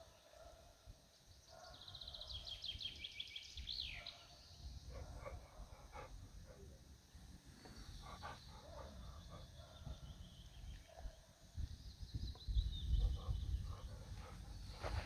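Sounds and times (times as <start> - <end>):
birds chirping faintly: 0.0 - 15.0
wind rumble on microphone: 11.0 - 15.0
soft rustles: 14.2 - 15.0.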